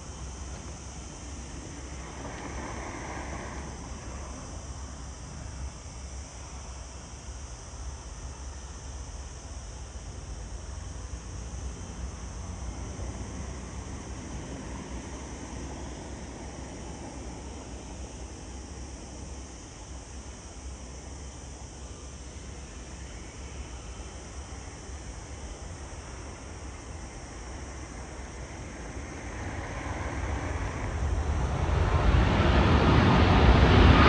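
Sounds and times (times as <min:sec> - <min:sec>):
wind rumble on microphone: 0:00.0 - 0:05.9, 0:28.4 - 0:34.0
constant high hiss: 0:00.0 - 0:34.0
faint jet engine noise: 0:00.0 - 0:34.0.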